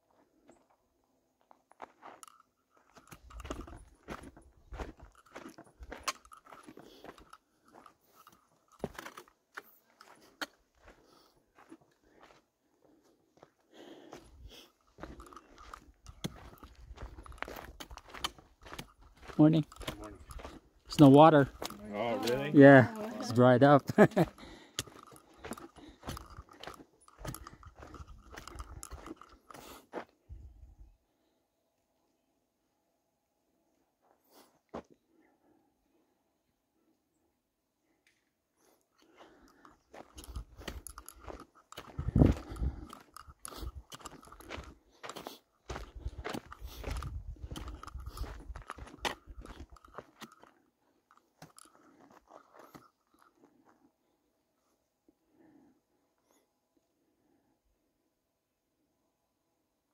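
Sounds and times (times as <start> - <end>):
footsteps crunching on rocky dirt: 1.4 - 30.2, 39.2 - 53.7.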